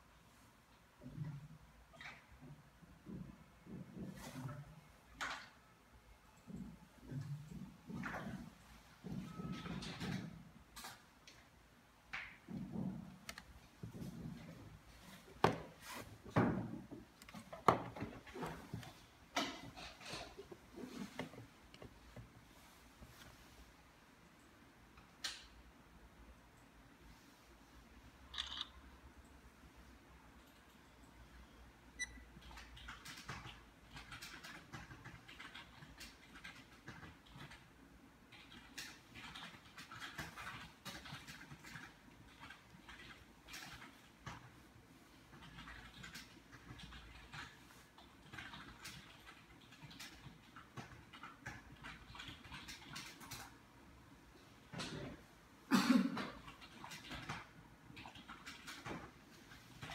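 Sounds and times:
rustling and scratching handling noise: 12.4s - 24.0s.

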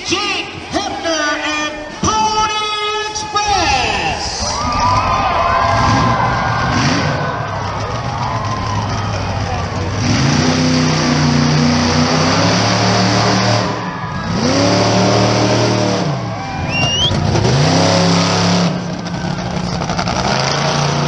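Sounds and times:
monster truck engine revving: 4.2s - 21.0s
high rising whistle: 16.3s - 17.2s.

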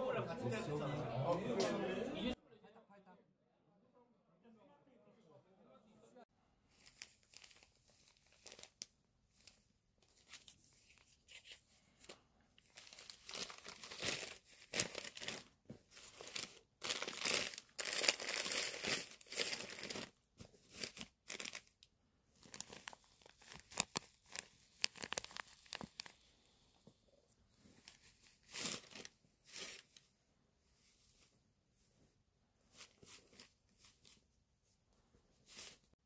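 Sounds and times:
tissue paper crinkling: 6.7s - 11.7s, 12.6s - 21.8s, 22.4s - 26.2s, 27.6s - 30.0s, 35.4s - 36.0s.

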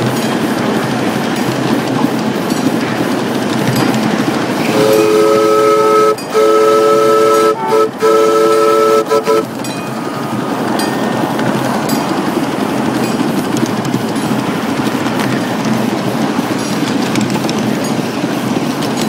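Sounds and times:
locomotive running on track: 0.0s - 19.0s.

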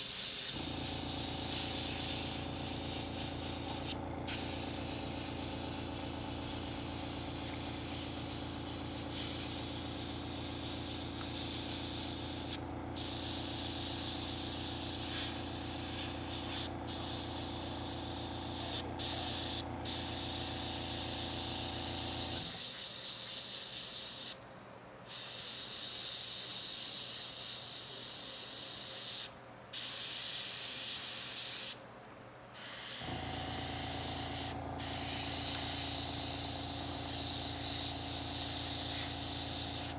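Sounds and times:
air compressor motor humming: 0.0s - 22.5s, 32.9s - 39.9s
airbrush spraying hiss: 0.0s - 24.4s, 25.1s - 31.8s, 32.6s - 39.9s.

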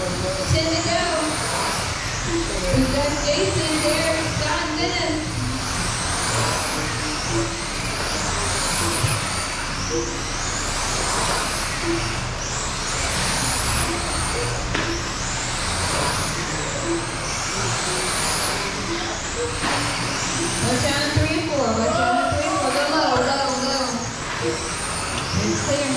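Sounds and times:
rc car motors whining: 0.0s - 25.9s.

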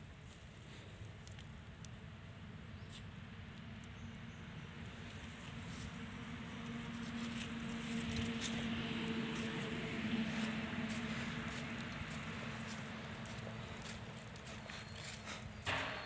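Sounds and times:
footsteps on dry leaves: 4.9s - 15.8s.

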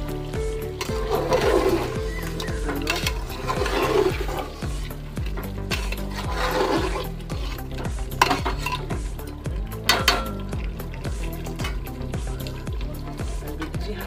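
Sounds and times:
background music with beat: 0.0s - 14.0s
metal spatula scraping a pot: 0.6s - 12.6s.

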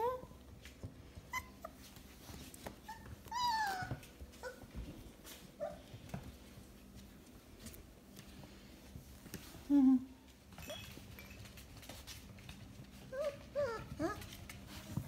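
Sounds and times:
puppies whining and yipping: 1.1s - 2.0s, 2.7s - 4.8s, 13.0s - 14.8s.

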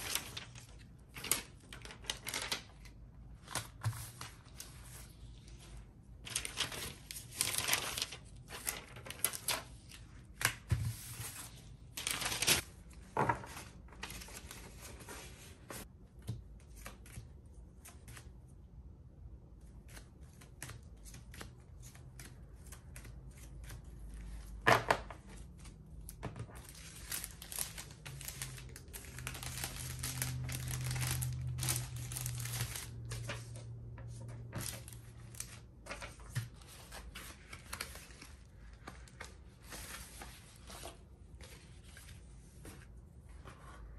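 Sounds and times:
plastic packaging crinkling: 0.0s - 2.7s, 12.0s - 12.6s, 26.6s - 33.3s.

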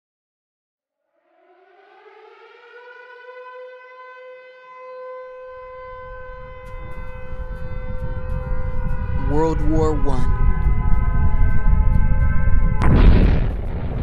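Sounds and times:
air-raid siren: 0.9s - 14.0s
low rumble: 6.3s - 14.0s.

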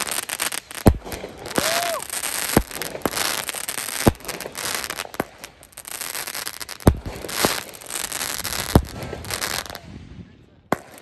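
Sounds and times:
crackling of bursting fireworks: 0.0s - 11.0s
firework bangs: 0.0s - 11.0s.

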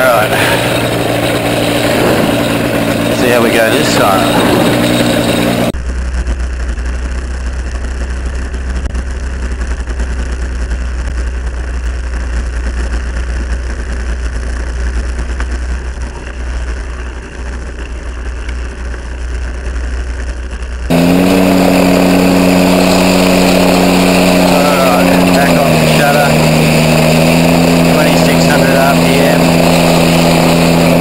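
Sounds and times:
gyroplane engine running: 0.0s - 31.0s.

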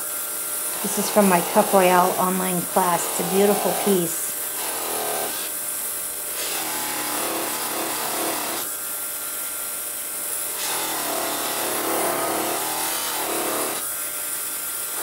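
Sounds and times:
bench lathe motor running: 0.0s - 8.7s, 10.4s - 15.0s
metal rubbing on buffing wheel: 0.8s - 5.4s.

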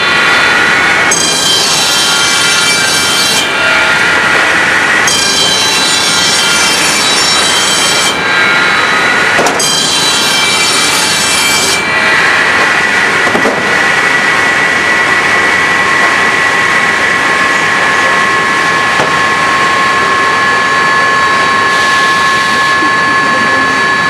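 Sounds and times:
saw cutting wooden boards: 0.0s - 24.0s.

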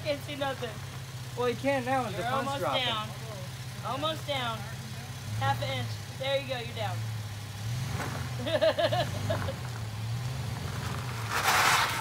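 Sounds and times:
truck engine idling: 0.0s - 12.0s
loud rough rushing noise: 10.6s - 12.0s.

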